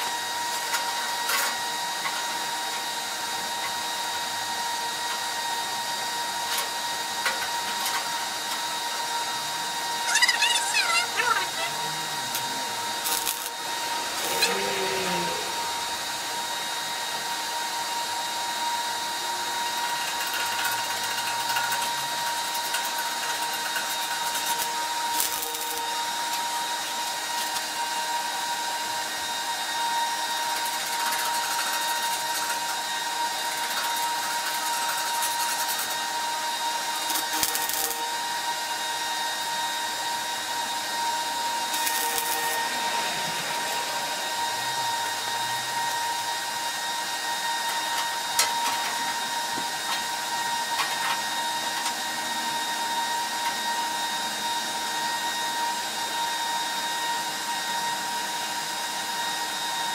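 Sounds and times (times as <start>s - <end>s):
welding arc crackle: 0.0s - 3.9s, 9.9s - 16.0s, 19.3s - 27.8s, 29.2s - 39.6s, 40.4s - 46.8s
whirring machine hiss: 6.0s - 36.2s, 36.8s - 53.6s.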